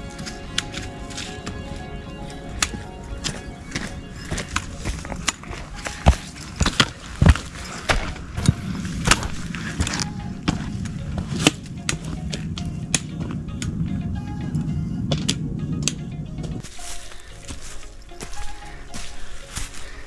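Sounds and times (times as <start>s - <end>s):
background music: 0.0s - 20.0s
poles and boots clicking on rock: 2.6s - 13.8s, 15.1s - 16.7s.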